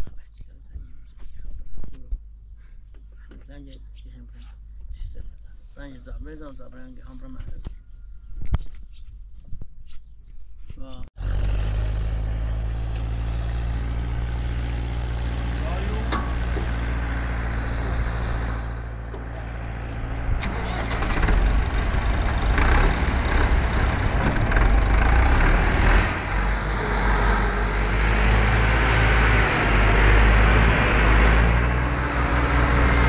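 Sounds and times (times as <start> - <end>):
tractor engine running: 11.2 - 33.0.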